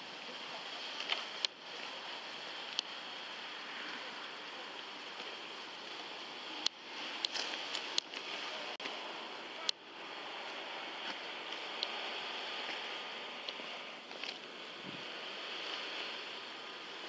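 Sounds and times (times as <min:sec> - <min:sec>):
microphone hiss and rustle: 0:00.0 - 0:17.0.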